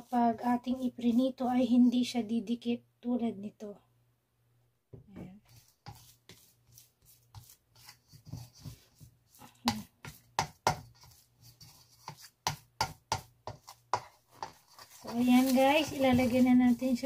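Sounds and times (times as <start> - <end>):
plastic spoon tapping and scraping bowl: 5.2 - 17.0.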